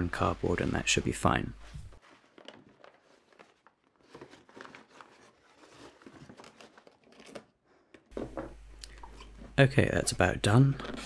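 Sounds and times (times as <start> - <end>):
paper crackles: 0.0 - 7.6
paper and cardboard rustling: 0.0 - 8.5.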